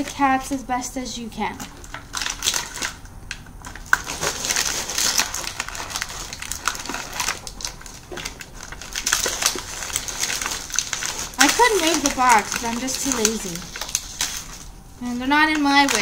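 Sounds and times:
plastic packaging crinkling: 1.4s - 16.0s
paper rustling: 3.6s - 16.0s.

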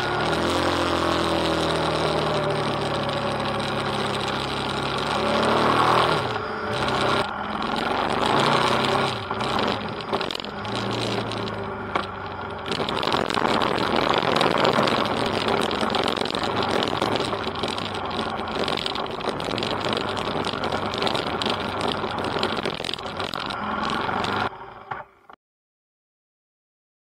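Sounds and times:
motorcycle engine running: 0.0s - 25.2s
road noise: 0.0s - 25.4s.

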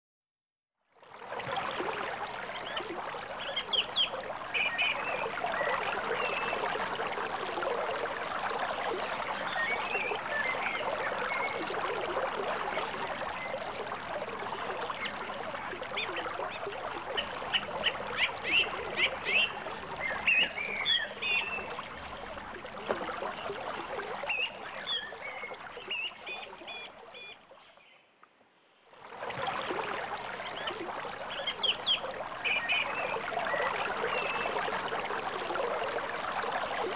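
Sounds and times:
creek water running: 0.8s - 36.9s
birds chirping: 16.0s - 23.6s, 24.2s - 28.1s.

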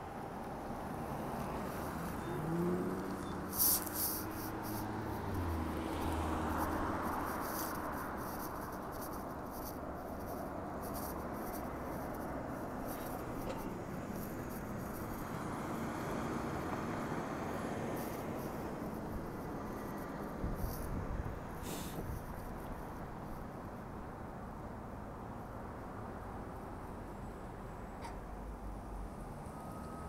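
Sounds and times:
cars driving past: 0.0s - 23.4s.

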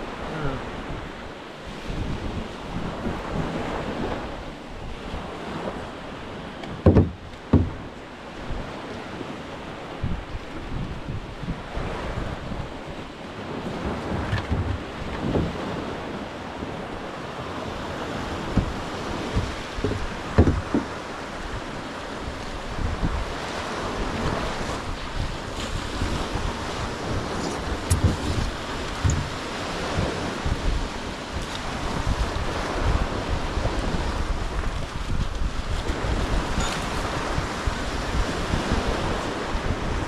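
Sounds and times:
small waves breaking on beach: 0.0s - 40.0s
wind buffeting microphone: 0.0s - 40.0s
short knocks: 6.6s - 7.9s, 18.5s - 21.0s, 27.8s - 29.4s.

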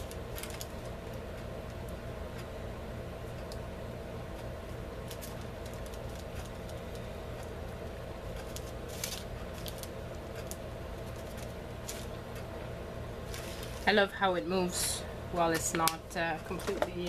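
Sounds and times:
steady low hum: 0.0s - 17.0s
card shifting on plastic: 13.2s - 13.8s.

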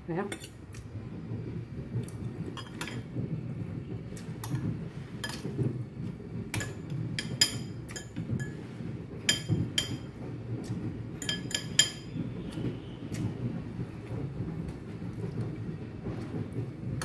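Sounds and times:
spoon and fork clinking against bowl: 11.2s - 12.0s.

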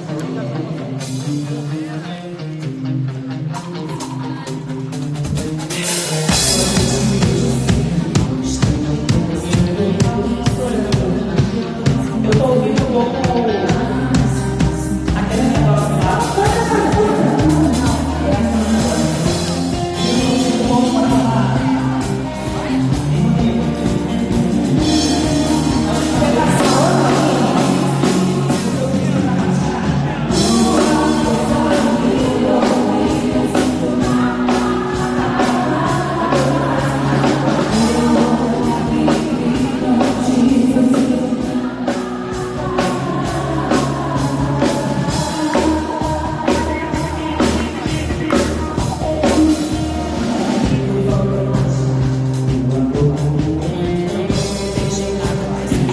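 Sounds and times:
woman singing into microphone: 9.4s - 52.0s.

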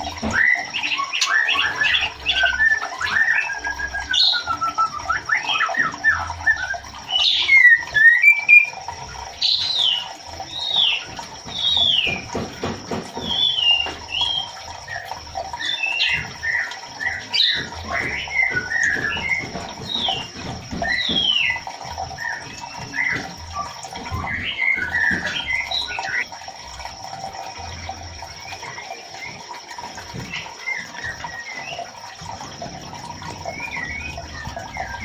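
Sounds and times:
bird whistled calls: 0.3s - 8.8s.

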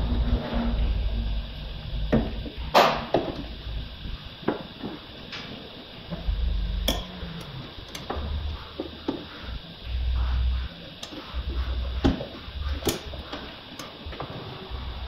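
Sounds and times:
tool clicking on sheet metal: 12.8s - 14.0s.

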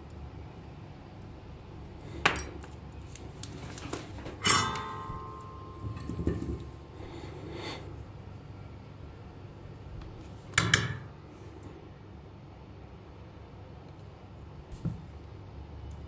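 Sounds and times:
metallic clink ringing: 4.4s - 6.7s.

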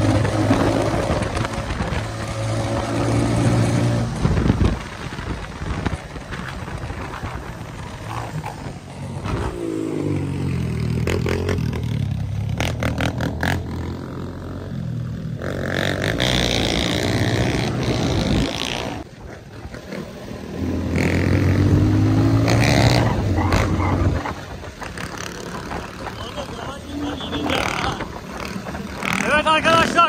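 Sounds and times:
dirt bike engine revving: 15.4s - 19.0s, 19.7s - 30.0s.

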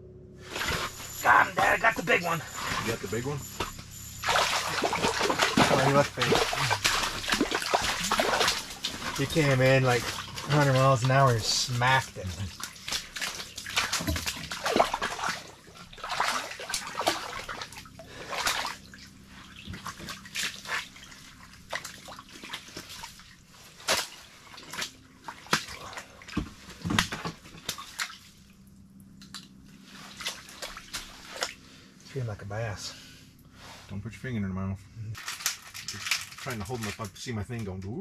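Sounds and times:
water splashes and drips: 4.2s - 31.6s.

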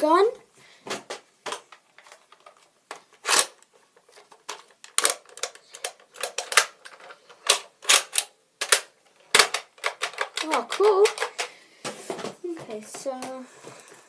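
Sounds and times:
plastic toy blaster clicking: 4.8s - 11.5s.

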